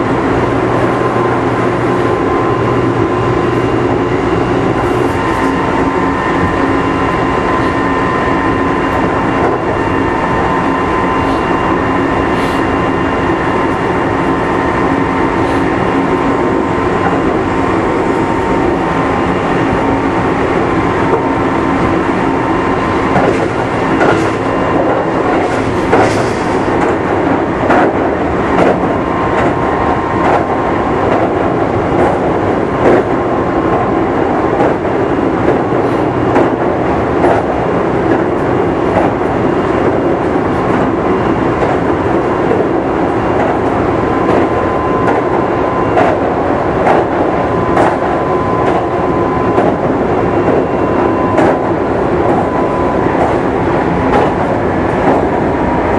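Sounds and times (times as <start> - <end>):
electric train rumble: 0.0 - 55.9.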